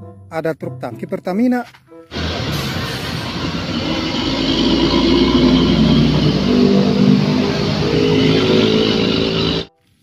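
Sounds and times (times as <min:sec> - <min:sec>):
vehicle engine revving: 0:02.1 - 0:09.7.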